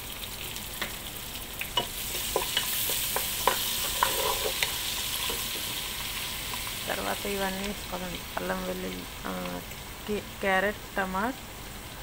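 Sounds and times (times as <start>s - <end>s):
onions sizzling in hot oil: 0.0s - 12.0s
spatula scraping a pot: 2.1s - 5.7s.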